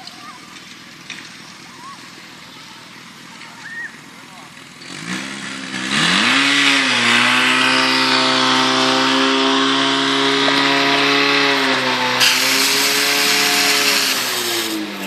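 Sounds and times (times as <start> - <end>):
pump engine droning: 0.0 - 15.0
water jets hissing from hoses: 10.6 - 15.0.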